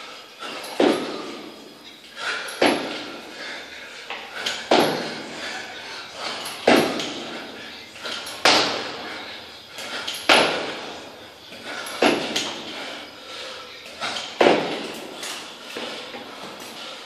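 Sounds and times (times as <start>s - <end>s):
hard breathing: 0.0s - 17.0s
heavy thuds of feet landing: 0.7s - 1.7s, 2.6s - 3.5s, 4.5s - 13.1s, 14.0s - 15.2s.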